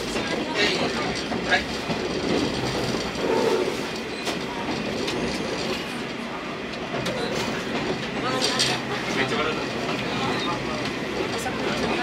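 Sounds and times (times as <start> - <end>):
railcar engine and wheels rumble: 0.0 - 12.0.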